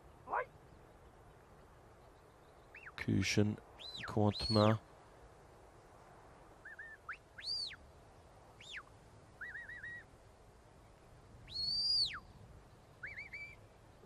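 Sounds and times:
shepherd's whistle signals: 11.5s - 12.2s.

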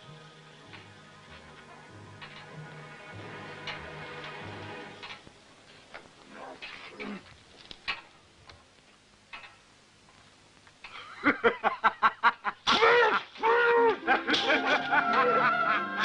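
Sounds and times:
man laughing loudly: 11.0s - 16.0s.

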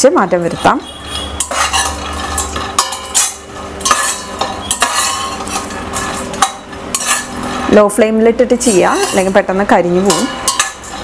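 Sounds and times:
spoon scraping metal pan: 0.4s - 11.0s
nuts sliding over pan: 1.4s - 7.9s, 8.6s - 9.4s.

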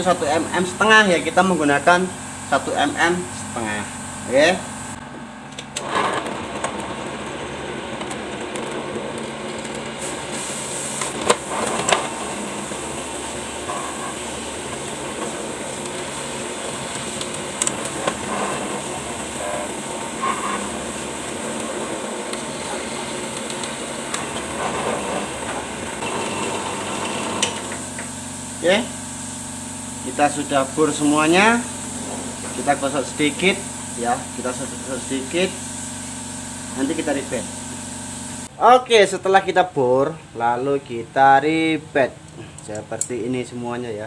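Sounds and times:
drill press drilling: 5.6s - 35.6s.

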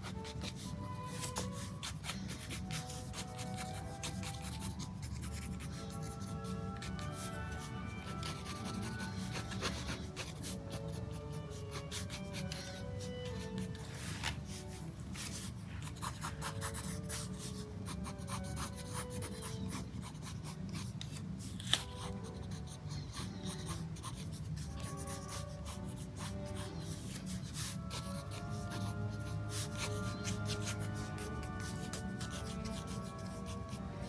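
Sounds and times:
pen scratching on paper: 0.0s - 34.0s
soft background music: 0.0s - 34.0s.

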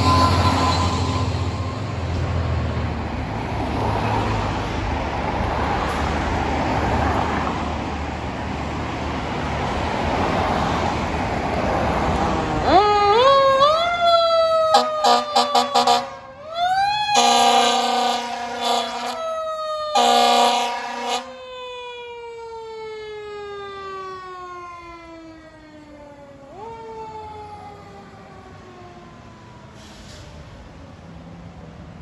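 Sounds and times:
air horn blasts: 0.0s - 2.2s, 14.7s - 16.2s, 17.2s - 19.3s, 19.9s - 21.3s
fire engine siren wailing: 0.0s - 4.7s, 11.4s - 31.1s.

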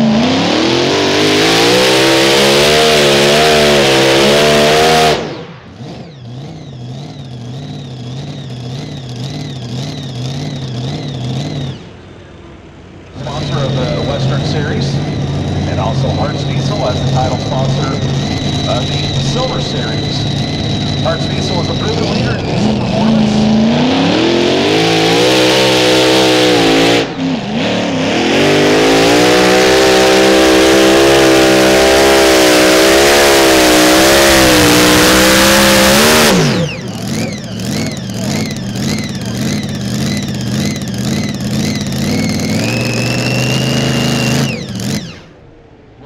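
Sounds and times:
tractor engine at full throttle: 0.0s - 46.0s
wavering engine whine: 0.0s - 46.0s.

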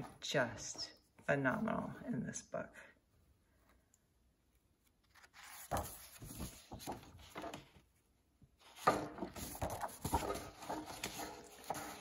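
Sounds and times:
paper rustling as page turns: 4.7s - 7.9s, 8.6s - 12.0s.

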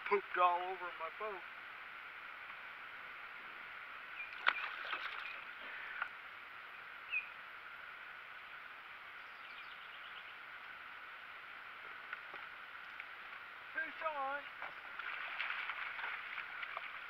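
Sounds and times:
steady river hiss: 0.0s - 17.0s
birds chirping: 3.4s - 7.5s, 8.3s - 10.8s, 11.7s - 15.1s.

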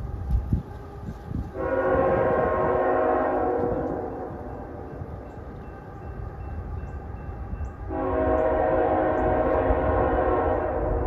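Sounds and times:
train rumbling: 0.0s - 11.0s
locomotive air horn: 1.6s - 4.9s, 7.9s - 11.0s.

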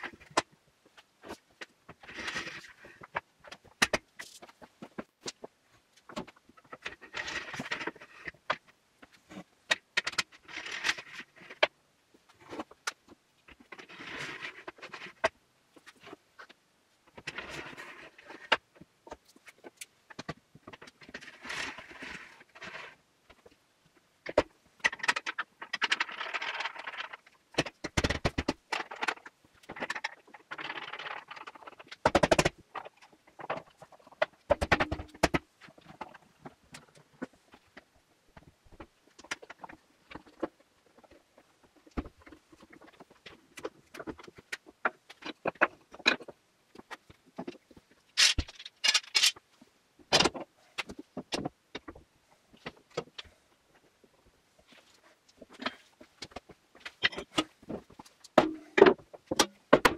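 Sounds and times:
clamps clicking and scraping: 39.1s - 49.4s.

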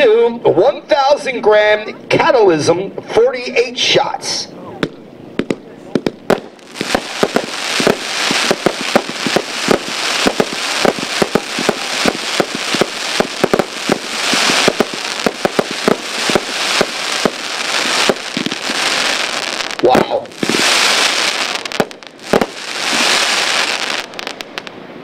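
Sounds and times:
fireworks shots and bursts: 4.8s - 24.8s
fireworks hiss: 5.4s - 24.8s.

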